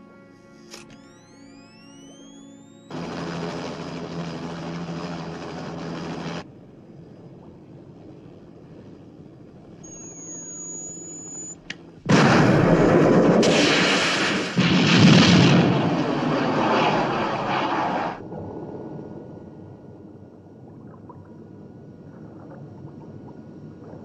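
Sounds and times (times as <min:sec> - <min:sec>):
thin high tone: 0:00.6 - 0:03.0, 0:09.8 - 0:11.7
helicopter explosion blast: 0:12.1 - 0:18.1
missile launching rush: 0:12.1 - 0:18.2
low underwater rumble: 0:18.2 - 0:24.0.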